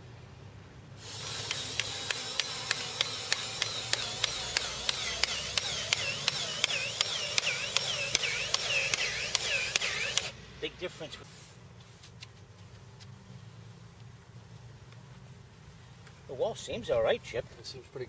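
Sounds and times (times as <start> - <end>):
hole cutter motor whining: 1.0 - 10.4
sharp clicks: 1.2 - 10.3.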